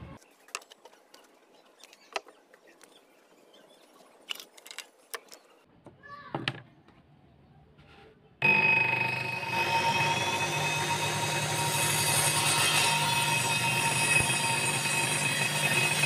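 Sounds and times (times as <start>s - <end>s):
wooden pieces clicking and knocking: 4.2s - 5.5s
table saw whining: 8.4s - 16.0s.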